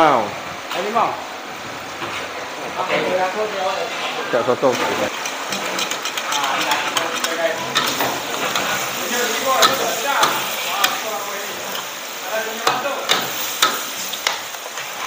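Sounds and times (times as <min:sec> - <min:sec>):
noodles sizzling in a wok: 0:02.8 - 0:15.0
ladle and tongs scraping wok: 0:03.6 - 0:15.0
metal clanks against wok: 0:04.7 - 0:08.8, 0:09.5 - 0:11.0, 0:12.6 - 0:14.6.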